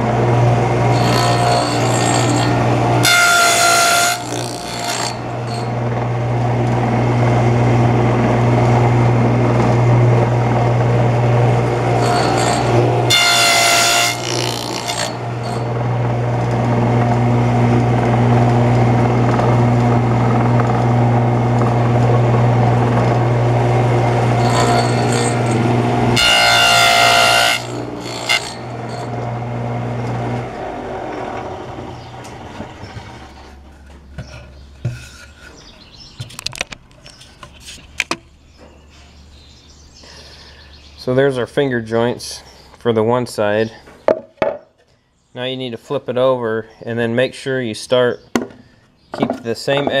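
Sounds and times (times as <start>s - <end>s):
saw cutting through board: 0.0s - 7.6s, 11.2s - 18.3s, 22.4s - 33.5s
saw winding down: 0.0s - 33.4s
table saw running: 0.0s - 33.7s.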